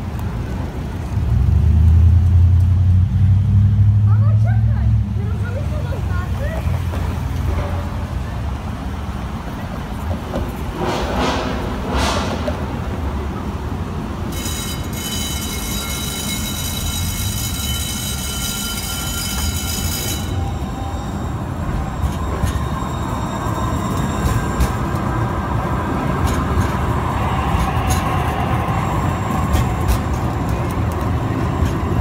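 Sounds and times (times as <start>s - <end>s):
train rolling rumble: 0.0s - 32.0s
wheels clicking on rails: 4.2s - 32.0s
train wheels squealing: 14.3s - 25.6s, 26.2s - 32.0s.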